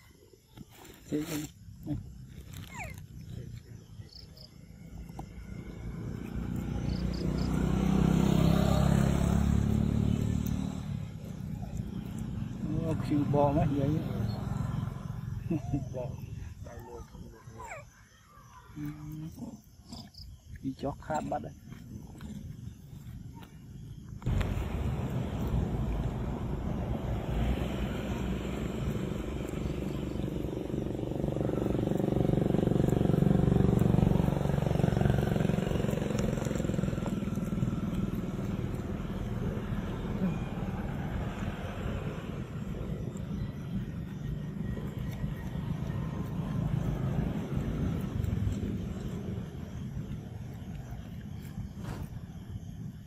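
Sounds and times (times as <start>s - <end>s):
vehicle engine passing by: 4.1s - 16.4s, 23.8s - 53.0s.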